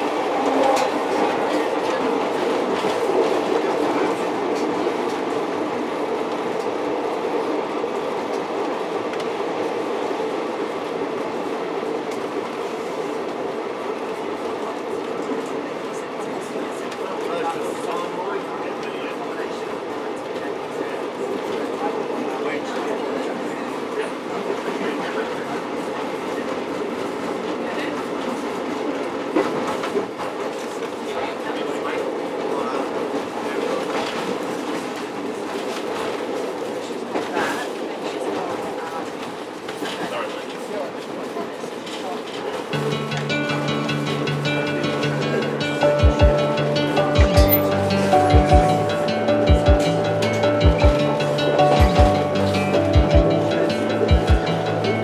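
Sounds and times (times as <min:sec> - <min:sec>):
train wheels rumbling on rail: 0:00.0 - 0:43.4.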